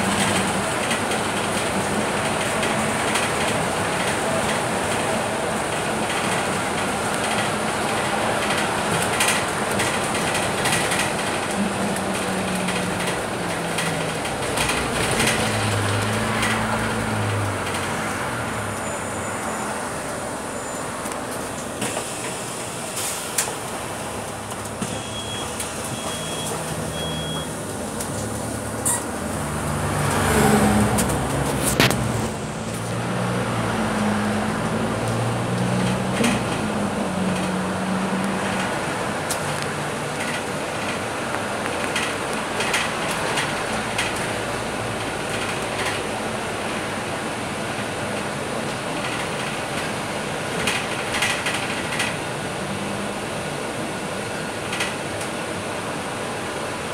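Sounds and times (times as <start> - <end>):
short high beeps: 24.9 - 27.5.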